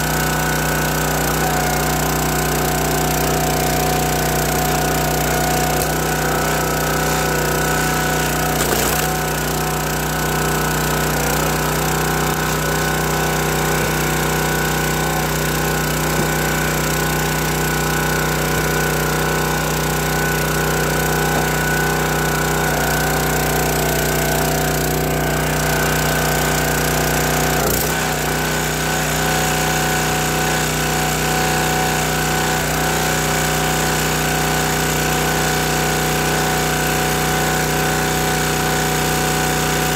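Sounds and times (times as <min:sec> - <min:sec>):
small gas engine running: 0:00.0 - 0:39.9.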